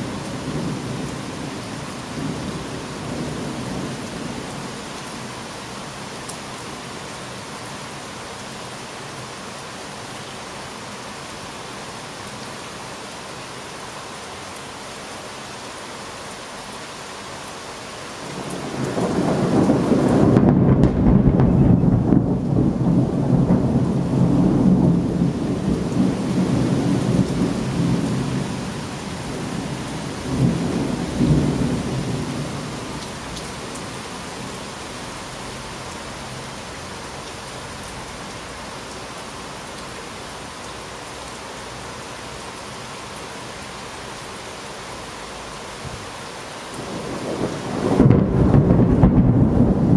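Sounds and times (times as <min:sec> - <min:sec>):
steady rain: 0:00.0 - 0:49.9
thunder rumbling: 0:18.3 - 0:33.3, 0:46.8 - 0:49.9.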